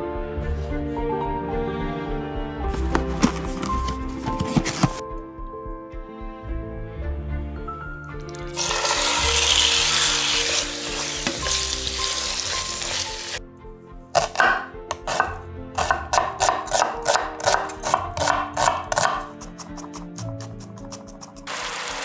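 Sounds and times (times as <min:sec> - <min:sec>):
background music: 0:00.0 - 0:22.0
chicken sizzling in hot oil: 0:08.4 - 0:13.4, 0:21.5 - 0:22.0
knife chopping on wooden board: 0:14.2 - 0:21.4.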